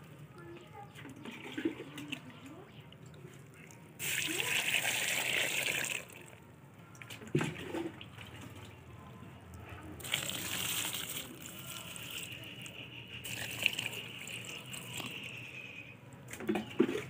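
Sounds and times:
water pouring and splashing: 3.0s - 6.4s, 10.0s - 15.5s.

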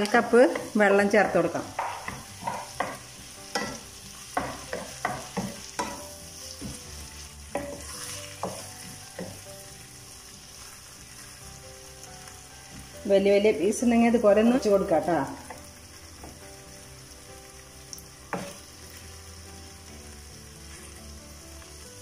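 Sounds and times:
sizzling in a pan: 0.0s - 22.0s
spatula scraping a wok: 1.5s - 11.6s.

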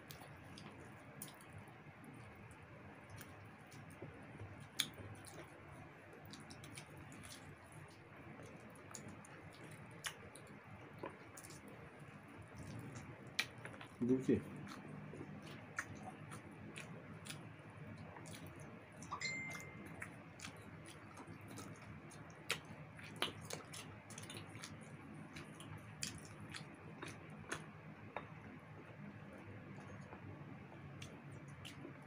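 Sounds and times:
chewing with lip smacks: 0.0s - 19.1s, 19.8s - 32.0s
low steady hum: 0.0s - 32.0s.

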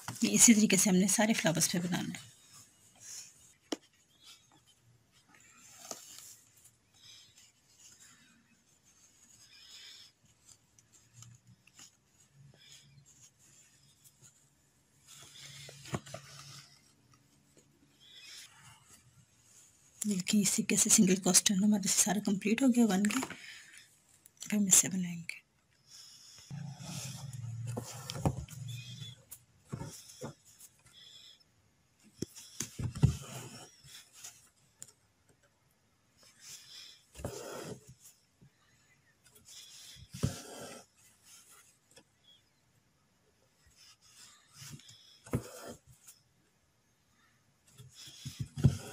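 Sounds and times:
fingertips rubbing fabric: 0.0s - 23.1s, 25.9s - 31.4s, 32.0s - 34.8s, 36.2s - 42.4s, 43.6s - 46.4s, 47.1s - 48.9s
thread scraping through fabric: 26.4s - 31.2s.

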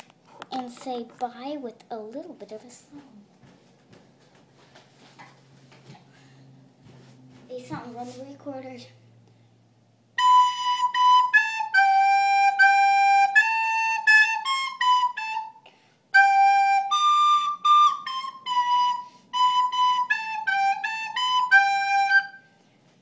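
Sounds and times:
recorder melody: 10.2s - 15.6s, 16.2s - 22.5s.

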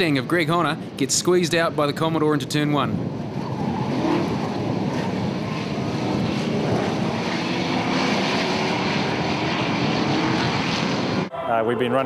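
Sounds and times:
race car engines at high revs: 3.0s - 11.3s.

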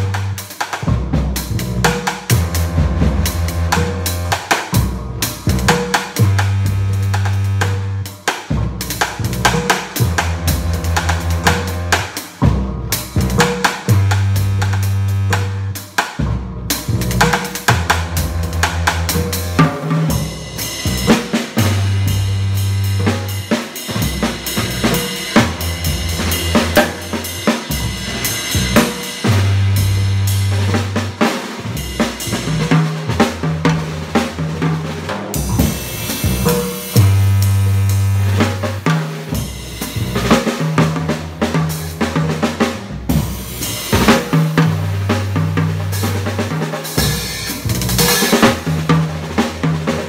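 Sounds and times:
drum kit played with sticks: 0.0s - 50.0s
deep synth bass line: 1.4s - 8.0s, 9.2s - 15.7s, 16.4s - 19.6s, 20.2s - 23.4s, 24.1s - 31.0s, 35.5s - 38.8s.

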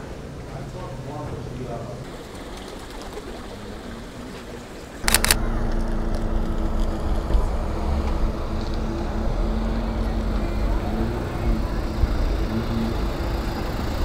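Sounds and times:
quiet street ambience: 0.0s - 14.0s
engine rumble and hum: 1.9s - 14.0s
sharp clicks: 5.0s - 7.4s.

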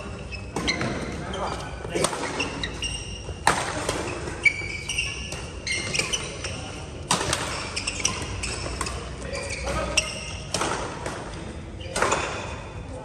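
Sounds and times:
shoes squeaking on court floor: 0.0s - 12.9s
racket hitting shuttlecock: 2.0s - 12.6s.

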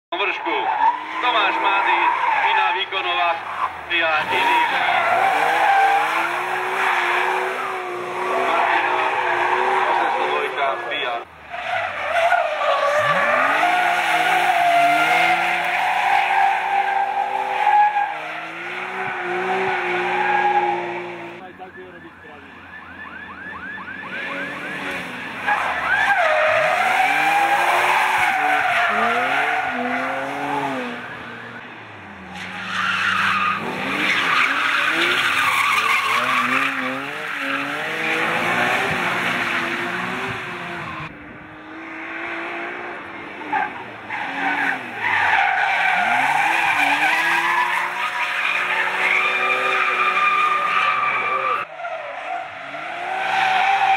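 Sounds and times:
car engine revving: 2.8s - 21.4s, 23.4s - 51.7s
tyres squealing: 24.4s - 31.7s, 32.3s - 39.7s, 43.5s - 52.4s.

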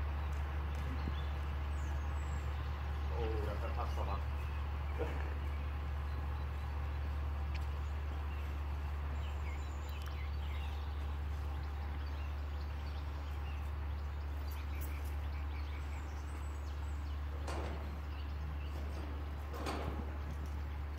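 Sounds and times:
distant tractor drone: 0.0s - 20.9s.

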